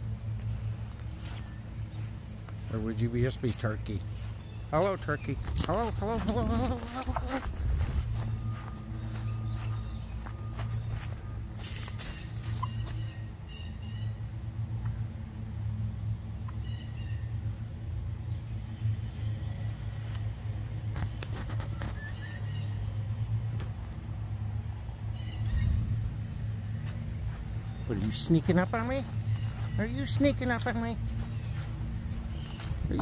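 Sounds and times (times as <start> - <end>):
steady low rumble: 0.0 - 33.0
wild turkeys calling softly: 8.2 - 14.2.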